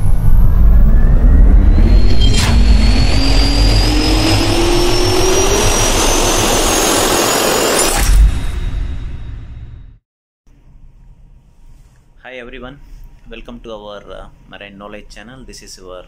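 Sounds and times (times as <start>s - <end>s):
jet turbine roar: 0.0s - 8.0s
rising turbine whine: 0.0s - 10.0s
sharp hit: 0.0s - 10.0s.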